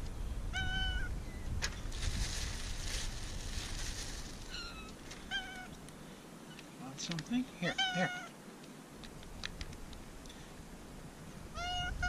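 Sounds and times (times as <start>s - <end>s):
cat meowing: 0.6s - 1.1s, 4.5s - 5.7s, 7.7s - 8.3s, 11.6s - 12.0s
plastic bag rustling: 1.8s - 5.7s.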